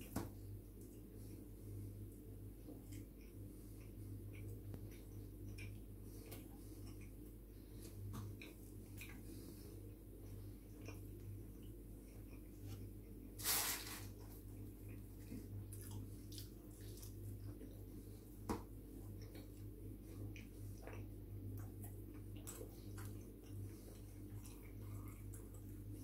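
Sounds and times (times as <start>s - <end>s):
steady low hum: 0.0s - 26.0s
chewing and wet mouth clicks: 2.8s - 7.3s, 8.2s - 9.2s, 10.2s - 12.9s, 19.1s - 26.0s
hissing rustle: 13.4s - 14.1s.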